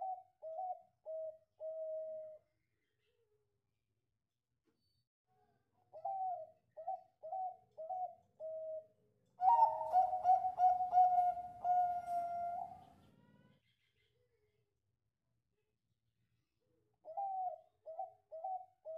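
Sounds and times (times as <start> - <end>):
dove cooing: 0.0 - 2.4, 5.9 - 13.3, 17.0 - 18.9.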